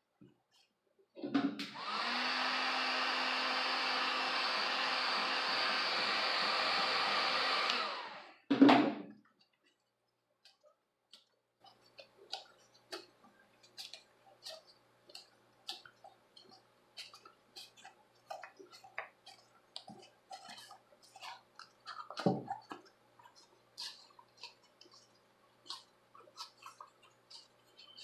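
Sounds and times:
heat gun blowing: 1.7 - 8.4.

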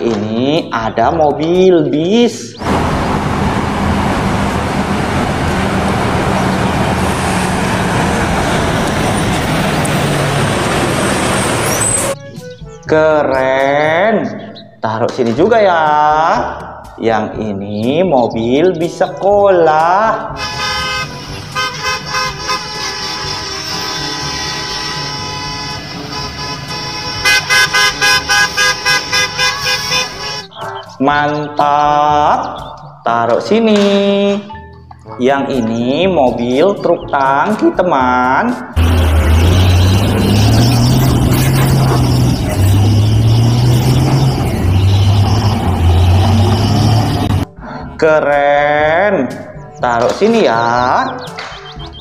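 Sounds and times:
road traffic noise: 0.9 - 13.2, 17.8 - 33.0, 38.2 - 47.7, 51.0 - 52.0
bus engine running: 2.5 - 12.7, 20.4 - 30.5, 38.8 - 47.5
electronic horn-like tone: 20.4 - 30.6.

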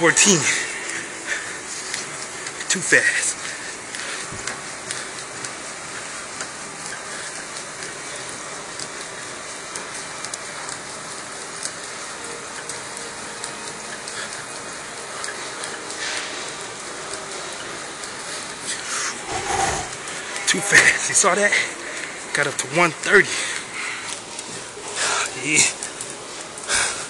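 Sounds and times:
exercise bike whirring: 0.0 - 27.0.

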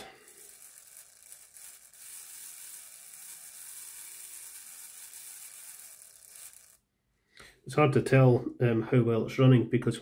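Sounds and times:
small motor whirring: 0.0 - 6.8.

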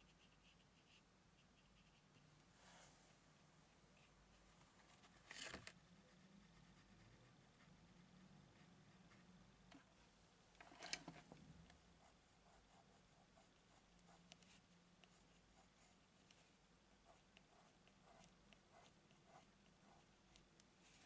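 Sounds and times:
pencil scratching on paper: 0.0 - 2.0, 6.1 - 9.2, 12.0 - 16.4, 17.0 - 20.2
rustling and clicks from handling: 10.6 - 11.4.

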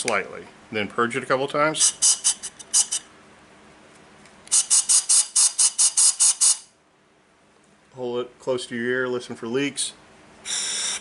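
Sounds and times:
faint hiss of regulator: 10.4 - 11.0.

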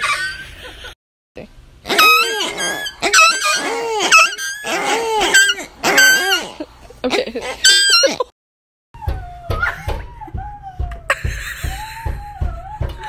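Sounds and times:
squeaky dog toys squeaking: 1.8 - 6.6, 7.4 - 8.3.

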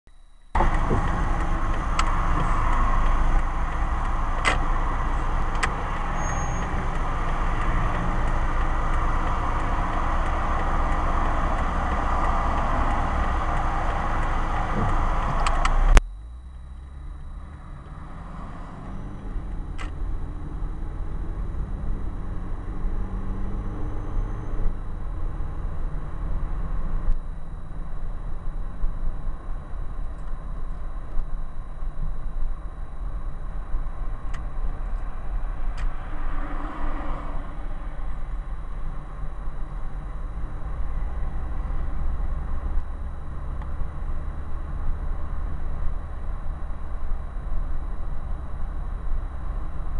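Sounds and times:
engine and road noise: 0.1 - 49.9
sharp clicks: 0.4 - 18.0.

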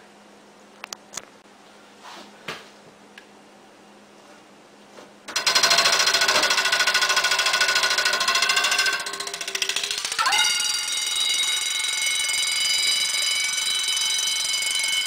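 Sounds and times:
alarm bell ringing under water: 5.4 - 15.0.

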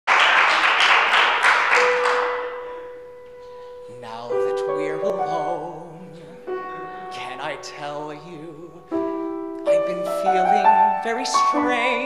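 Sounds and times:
audience applause: 0.1 - 2.8
grand piano chords: 0.7 - 12.0.

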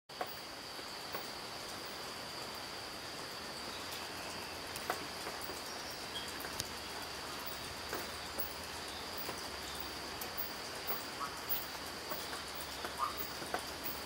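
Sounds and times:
forest ambience hiss: 0.1 - 14.0
insects trilling: 0.1 - 14.0
faint clicks: 4.7 - 6.8.

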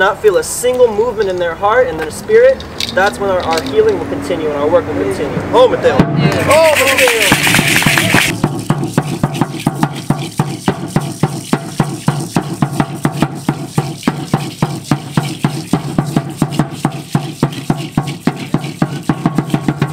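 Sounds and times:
drum beaten in fast rhythm: 5.9 - 19.9.

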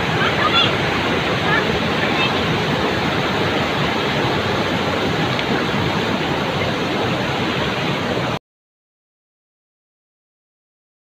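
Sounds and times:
water rushing over rapids: 0.0 - 8.4.

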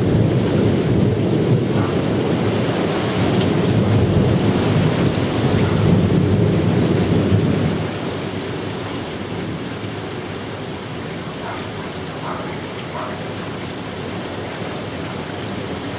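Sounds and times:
thunder rumbling: 0.0 - 9.6
steady rain falling: 0.0 - 15.9.

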